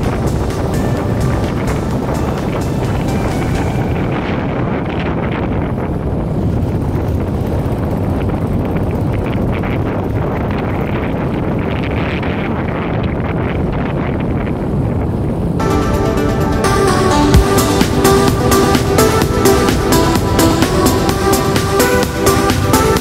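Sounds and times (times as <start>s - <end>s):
motorcycle engine: 0.0s - 12.7s, 14.2s - 23.0s
road noise: 0.0s - 23.0s
wind buffeting microphone: 0.0s - 23.0s.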